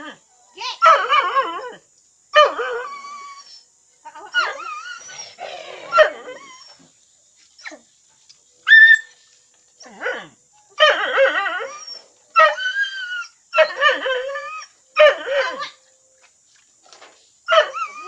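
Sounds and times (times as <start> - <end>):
dogs whining and yelping: 2.4 - 7.0, 8.7 - 9.2, 9.8 - 15.8, 17.5 - 18.0.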